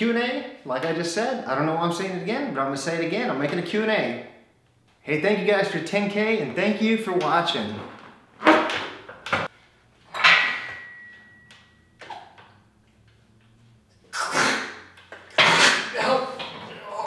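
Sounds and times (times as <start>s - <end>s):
barbell knock: 10.1s - 11.8s.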